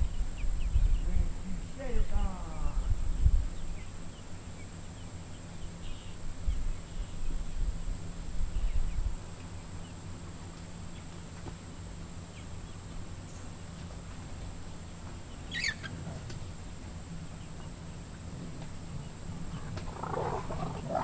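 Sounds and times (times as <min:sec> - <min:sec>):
insects buzzing: 0:00.0 - 0:21.0
low rumbles: 0:19.5 - 0:21.0.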